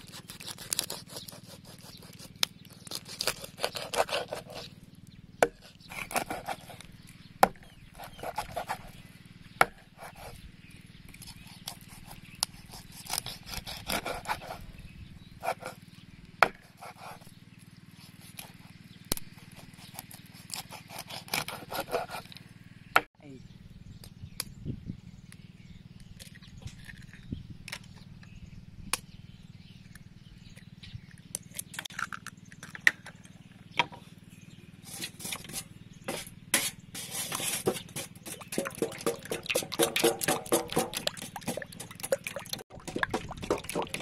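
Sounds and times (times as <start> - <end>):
knife crunching through fish skin: 0.0 - 4.7, 5.4 - 6.8, 11.2 - 14.6, 18.2 - 22.4.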